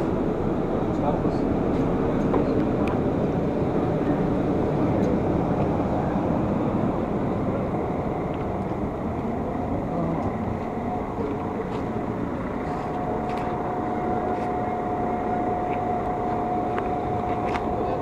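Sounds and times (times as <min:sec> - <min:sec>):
bus engine running: 0:00.0 - 0:18.0
steady high tone: 0:00.0 - 0:18.0.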